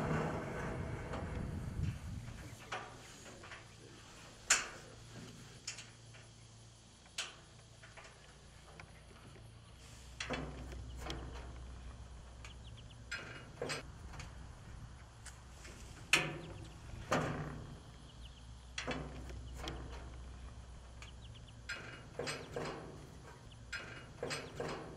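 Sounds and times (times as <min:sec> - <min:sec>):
clicks and knocks on steel frame: 0:00.0 - 0:06.4, 0:10.2 - 0:14.4, 0:15.3 - 0:18.0, 0:18.7 - 0:24.9.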